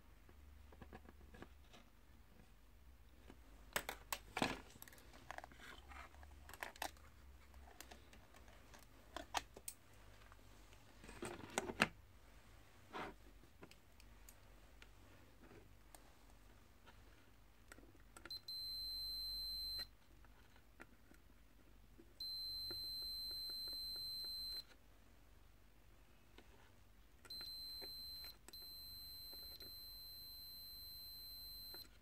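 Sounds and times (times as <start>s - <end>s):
multimeter continuity beeping: 18.3s - 19.9s, 22.2s - 24.7s, 27.3s - 32.0s
test probes clicking: 27.2s - 29.9s.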